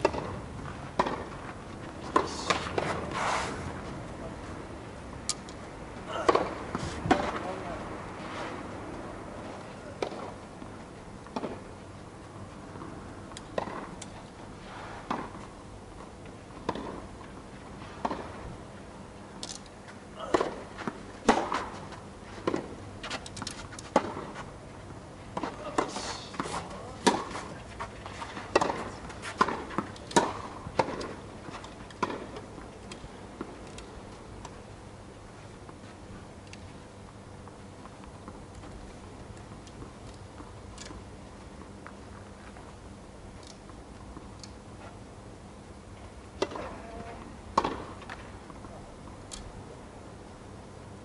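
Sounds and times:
tennis ball bouncing: 0.0 - 0.3, 0.9 - 1.4, 12.8 - 14.1, 25.4 - 27.4, 28.4 - 31.2, 47.6 - 48.2
tennis ball struck by racket: 0.0 - 1.3, 21.2 - 21.8, 25.4 - 27.5, 28.5 - 31.1, 47.6 - 48.2.

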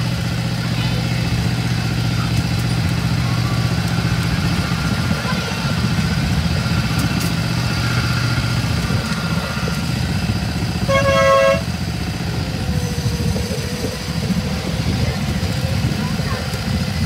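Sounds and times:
diesel train rumbling: 0.0 - 17.0
train horn: 10.8 - 11.8.

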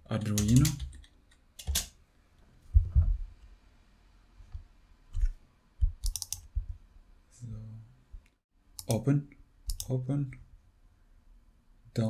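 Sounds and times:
mouse and keyboard clicks: 5.2 - 6.5, 9.7 - 9.9.

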